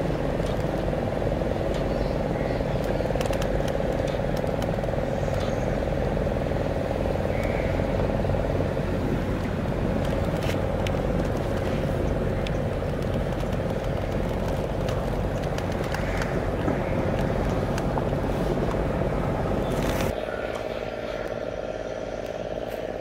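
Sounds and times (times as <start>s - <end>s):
boat engine droning: 0.0s - 23.0s.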